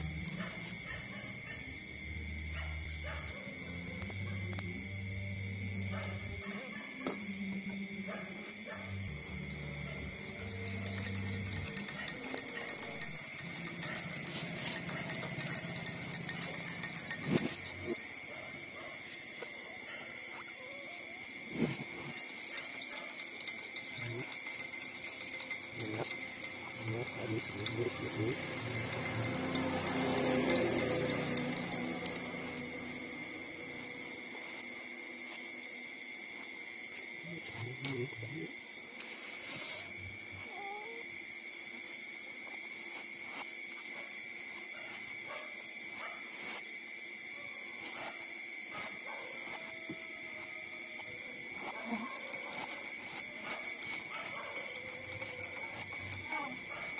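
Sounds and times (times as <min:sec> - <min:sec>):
steady high-pitched tone: 0:21.5 - 0:33.9.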